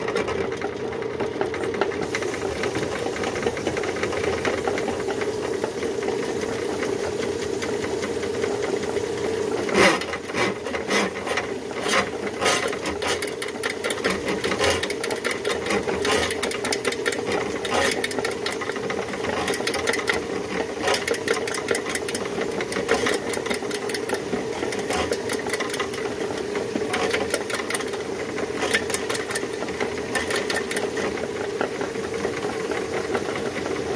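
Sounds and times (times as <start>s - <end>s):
drain snake motor humming: 1.8s - 33.9s
cable rattling against pipe: 9.6s - 31.3s.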